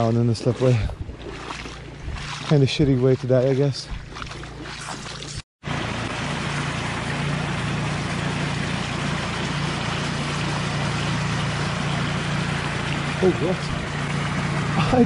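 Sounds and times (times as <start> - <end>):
low hum: 3.8 - 15.0
water rushing through spillway: 4.6 - 15.0.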